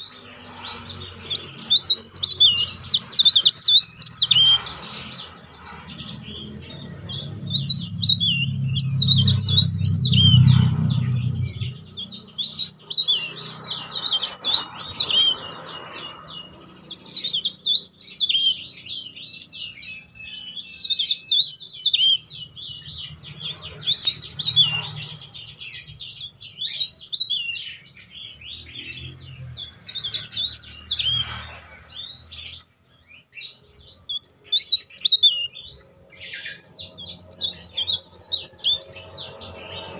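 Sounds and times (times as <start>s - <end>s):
bird twittering song: 0.0s - 39.9s
low rumble: 5.8s - 11.9s.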